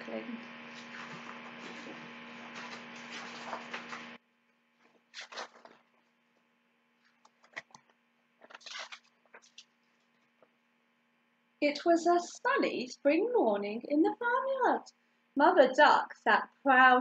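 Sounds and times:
steady electrical hum: 0.0s - 17.0s
book pages turning: 0.7s - 4.2s, 4.8s - 6.4s, 7.0s - 10.4s.

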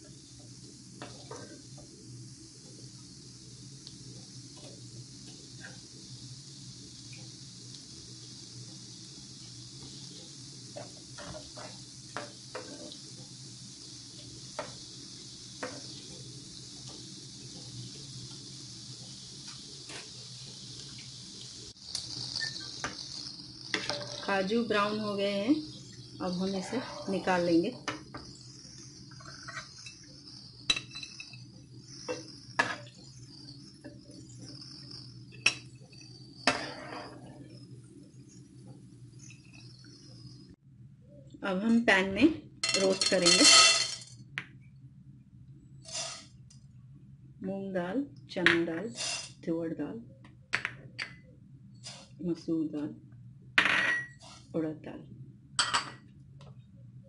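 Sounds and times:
nuts sizzling in hot oil: 0.0s - 40.6s, 41.4s - 44.4s, 45.8s - 46.5s, 48.1s - 49.6s, 51.8s - 52.8s, 53.6s - 54.6s, 55.6s - 56.0s
metal spoon scraping pan: 26.5s - 27.3s, 36.5s - 37.2s.

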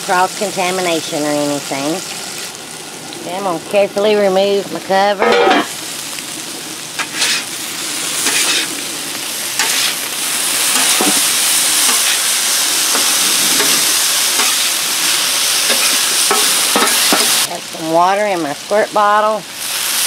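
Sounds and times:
potatoes sizzling in oil: 0.0s - 20.0s
spatula scraping griddle: 5.1s - 5.8s, 7.0s - 8.8s, 9.5s - 17.5s.

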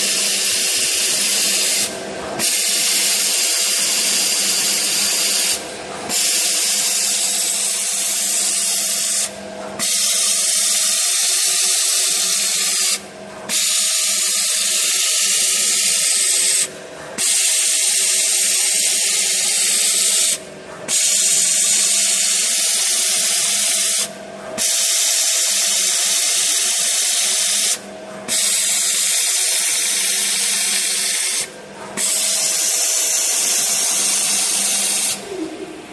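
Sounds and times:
tape cutting machine hiss: 0.0s - 35.6s
faint motor hum: 0.0s - 35.9s.

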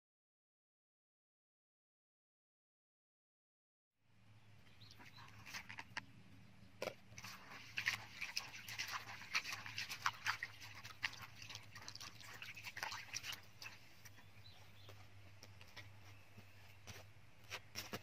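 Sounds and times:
hands splashing sprouts in water: 7.2s - 13.9s.

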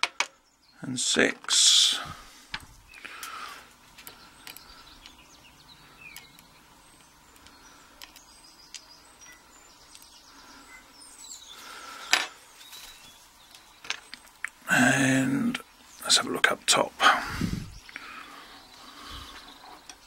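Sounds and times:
faint bird chirps: 2.9s - 16.3s.

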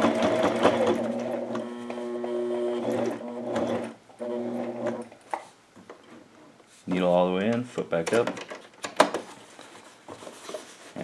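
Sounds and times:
sewing machine motor hum: 0.0s - 5.1s.

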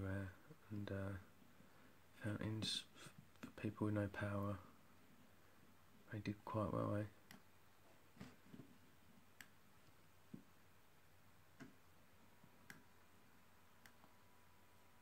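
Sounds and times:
faint mouse clicks: 9.4s - 10.5s, 12.6s - 12.9s, 13.8s - 14.2s.

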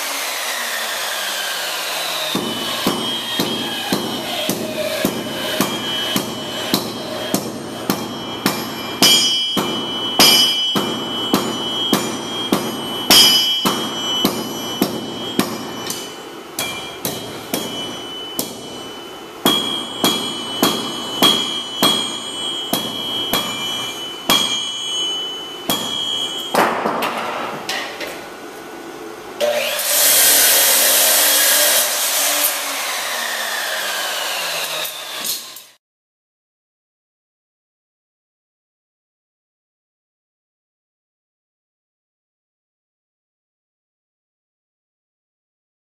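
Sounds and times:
hammer striking steel on anvil: 2.3s - 28.4s.

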